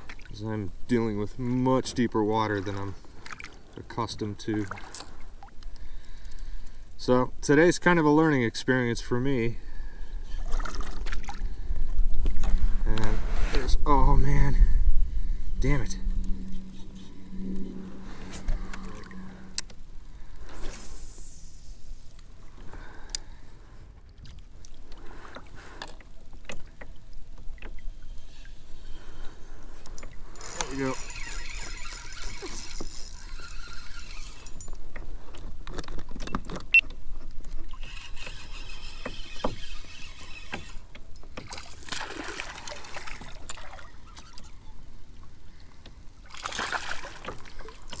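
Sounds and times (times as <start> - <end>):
water and hull noise: 0.0 - 48.0
fishing reel cranking: 29.8 - 34.8, 37.8 - 41.3.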